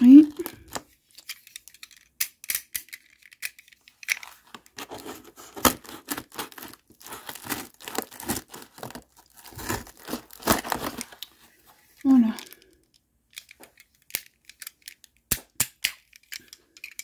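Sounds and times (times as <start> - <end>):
cardboard tearing: 4.8 - 11.2
box cutter slicing tape: 4.9 - 6.8.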